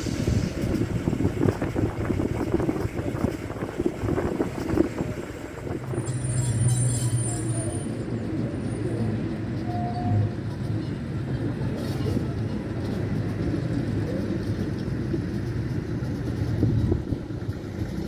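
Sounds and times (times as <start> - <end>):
steam locomotive blowing steam: 0.0 - 8.0
diesel locomotive engine humming: 0.0 - 18.0.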